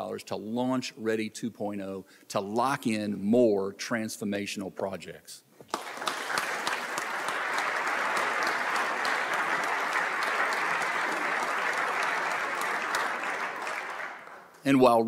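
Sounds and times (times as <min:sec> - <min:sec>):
audience applauding: 0:05.7 - 0:14.6.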